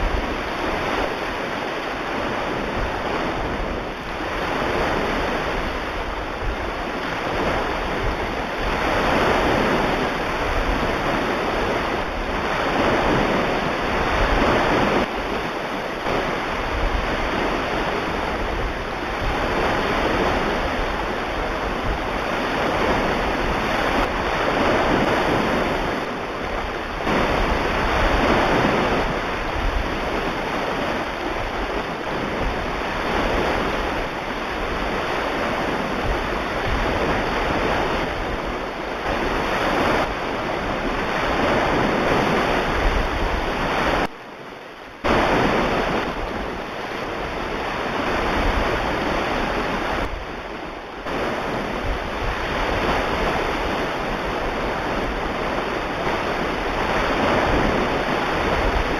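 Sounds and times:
ocean waves washing: 0.0s - 58.9s.

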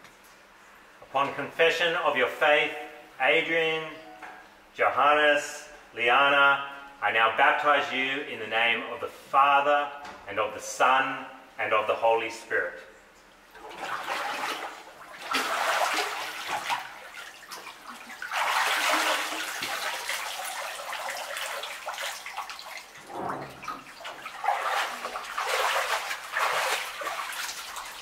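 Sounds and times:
water splashing and sloshing: 13.4s - 28.0s.

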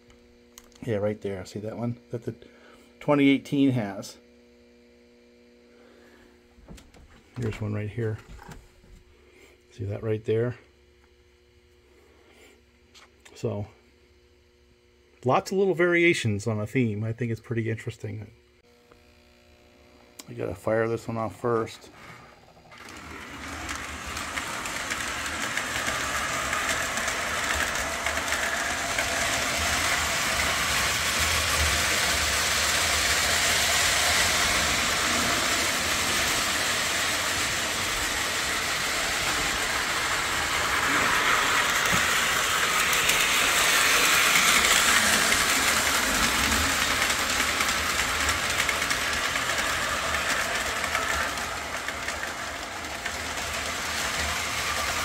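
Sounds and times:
model train running on track: 22.7s - 55.0s.

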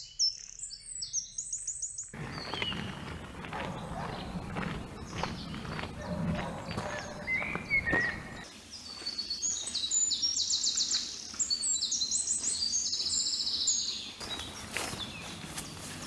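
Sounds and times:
songbirds chirping and trilling: 0.0s - 16.0s
footsteps on dirt path: 2.2s - 12.9s, 14.2s - 16.0s.

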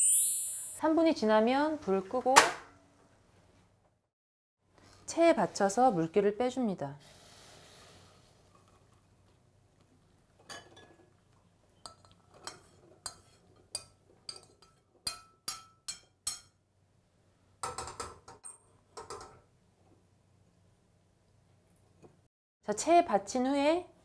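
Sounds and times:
metal spoon clinking on pot: 11.8s - 16.6s.

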